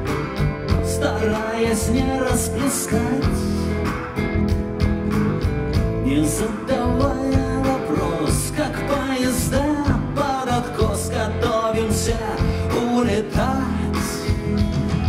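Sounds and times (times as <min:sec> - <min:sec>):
rock band playing: 0:00.0 - 0:15.0
man singing: 0:00.7 - 0:03.9, 0:06.0 - 0:15.0.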